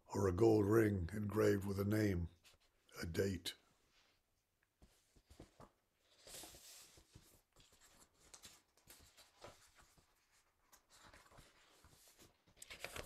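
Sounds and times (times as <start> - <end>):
paper rustling and clicking: 5.2 - 13.0.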